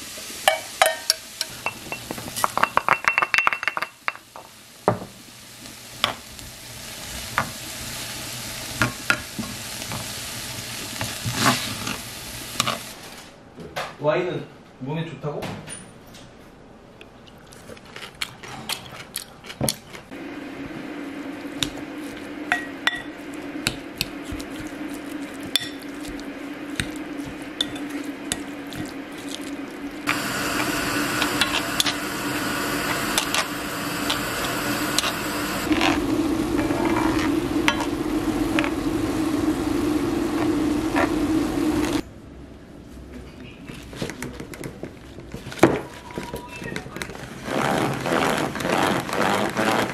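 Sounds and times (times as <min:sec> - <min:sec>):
meat sizzling in frying pan: 0:00.0 - 0:13.1, 0:20.8 - 0:42.0
steady low hum: 0:19.9 - 0:43.1
wooden spoon mixing meat: 0:23.2 - 0:29.8.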